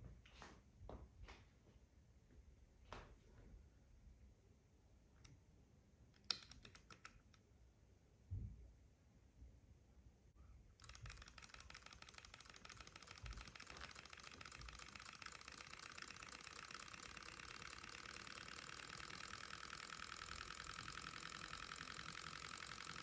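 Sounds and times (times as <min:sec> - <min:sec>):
model engine ticking clatter: 0:10.8 - 0:23.0.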